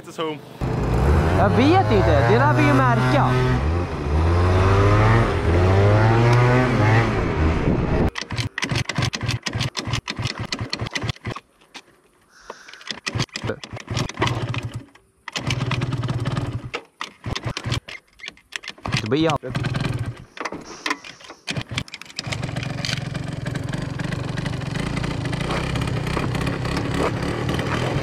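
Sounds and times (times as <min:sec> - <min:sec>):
moped engine running: 0:00.6 - 0:11.1, 0:15.4 - 0:16.7, 0:18.9 - 0:20.3, 0:21.6 - 0:28.0.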